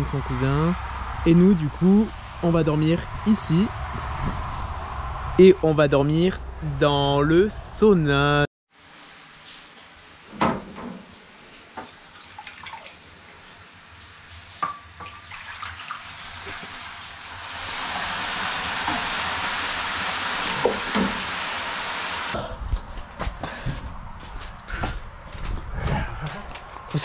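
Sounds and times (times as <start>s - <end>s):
water hissing on hot stones: 16.0s - 22.4s.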